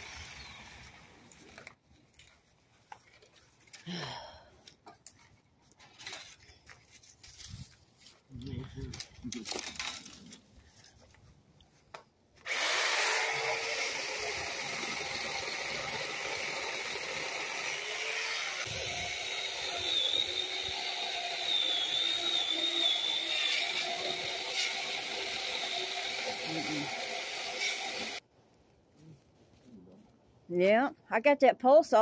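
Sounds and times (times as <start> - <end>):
chainsaw cutting wood: 0.0 - 1.2, 12.4 - 28.2.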